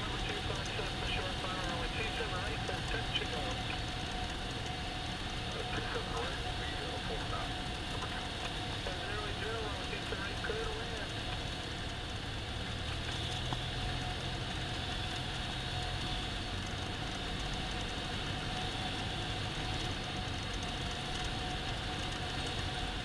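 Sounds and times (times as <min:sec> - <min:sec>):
propeller engine droning: 0:00.0 - 0:23.0.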